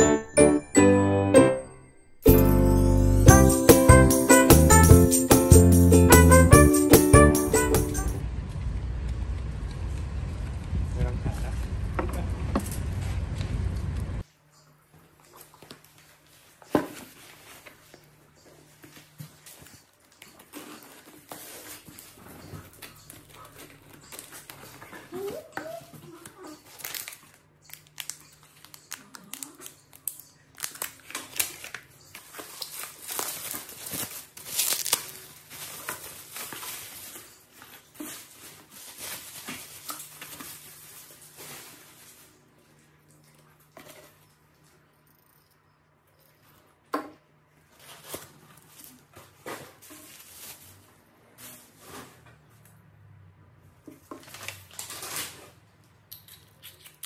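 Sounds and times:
plastic and cardboard crinkling: 15.0s - 43.0s, 47.6s - 52.6s, 53.9s - 55.8s.

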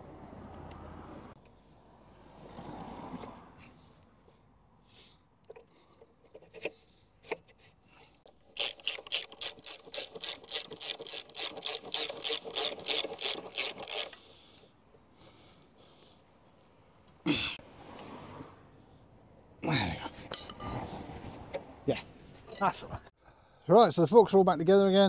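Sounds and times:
hand tool strokes: 5.6s - 14.7s.

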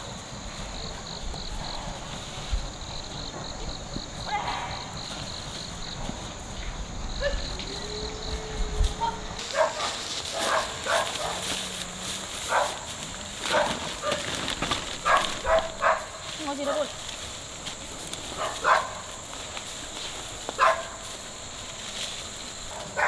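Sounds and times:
dog yelping: 9.0s - 11.4s, 15.0s - 16.1s, 18.4s - 19.0s.

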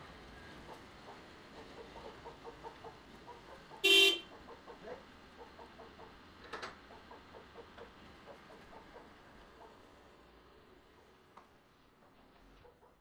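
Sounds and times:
vehicle horn toot: 3.8s - 4.3s.

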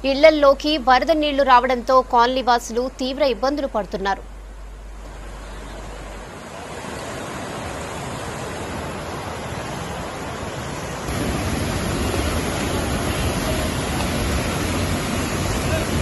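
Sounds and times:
floodwater rushing: 3.5s - 16.0s
water gushing through culvert: 6.2s - 16.0s.

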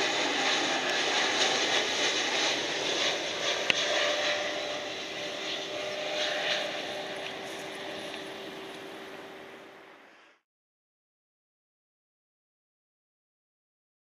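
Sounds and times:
jet engines running: 0.0s - 10.4s
steady hum: 0.0s - 10.4s.

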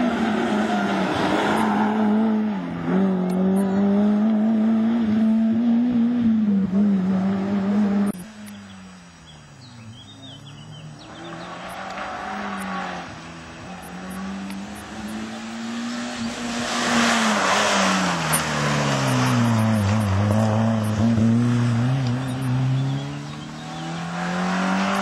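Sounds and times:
rally car engine revving: 0.0s - 25.0s.

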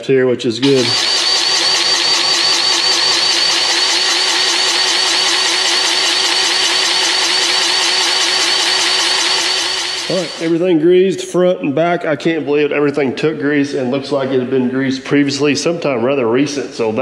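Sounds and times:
grease gun pump pulsing: 0.6s - 10.6s.

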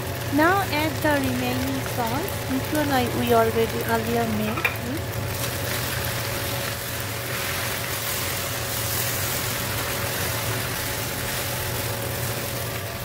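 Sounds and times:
noodles sizzling in a wok: 0.0s - 13.0s
steady low hum: 0.0s - 13.0s
spatula tossing food in wok: 4.5s - 13.0s.

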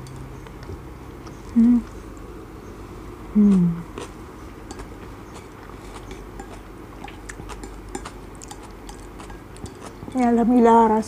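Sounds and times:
soft chewing: 0.0s - 2.4s, 3.4s - 10.4s
closed-mouth hum: 0.0s - 10.3s
chopsticks clicking on plate: 4.7s - 10.0s.

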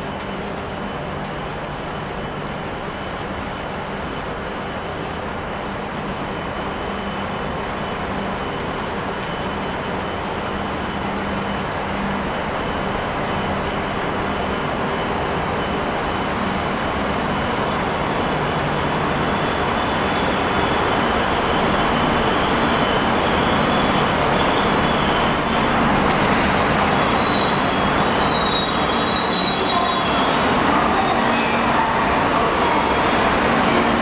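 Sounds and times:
train rumbling: 0.0s - 34.0s
high wheel squeals: 12.8s - 34.0s.

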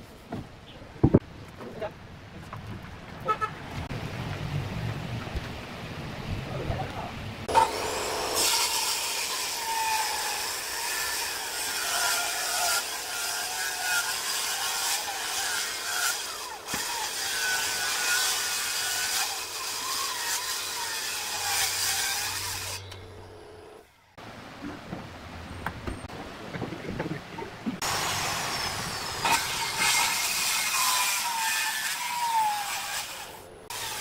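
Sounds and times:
circular saw cutting wood: 7.5s - 24.0s, 27.8s - 34.0s.

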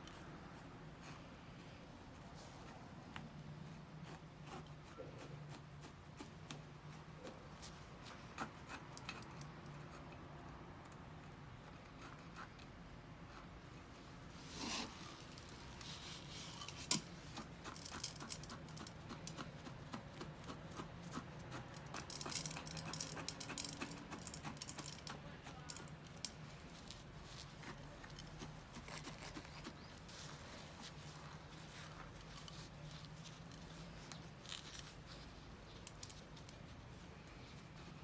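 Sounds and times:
chopstick scratching gritty soil: 3.7s - 7.4s, 8.0s - 10.1s, 14.4s - 36.9s.

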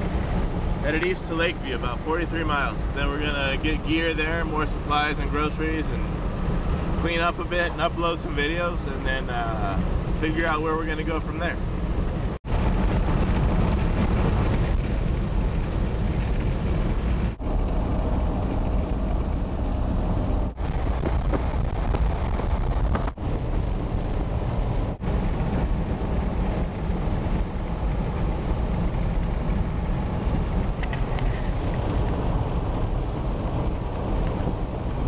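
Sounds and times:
car engine and road noise: 0.0s - 35.0s
wind on microphone: 0.0s - 35.0s.

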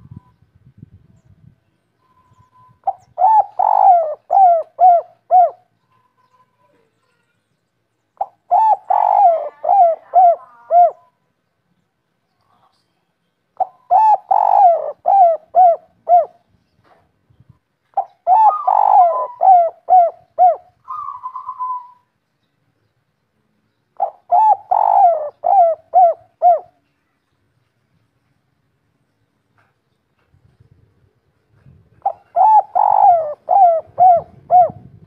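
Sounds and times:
dove cooing: 2.8s - 5.7s, 8.2s - 11.1s, 13.6s - 16.4s, 17.9s - 22.1s, 24.0s - 26.8s, 31.6s - 35.0s.

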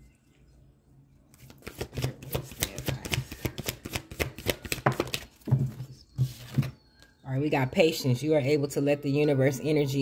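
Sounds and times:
cards shuffled by hand: 1.4s - 5.5s.

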